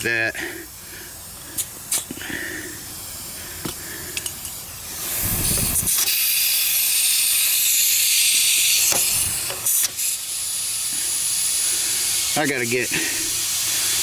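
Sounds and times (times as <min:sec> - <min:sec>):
compressed air hissing: 0:00.0 - 0:14.0
air chuck thud: 0:08.8 - 0:10.0.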